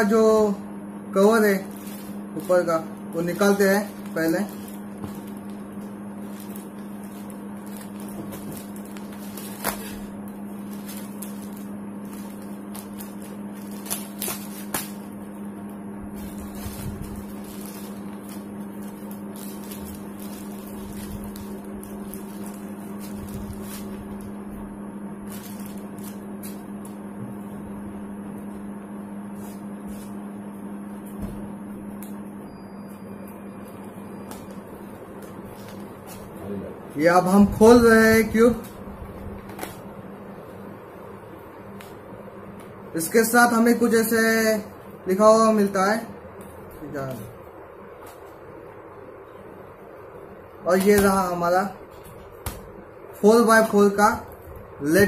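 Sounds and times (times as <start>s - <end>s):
low electrical hum: 0.0s - 55.0s
plastic wrapping crinkling and tearing: 1.3s - 15.4s, 16.1s - 24.4s, 25.2s - 27.0s, 33.6s - 36.4s.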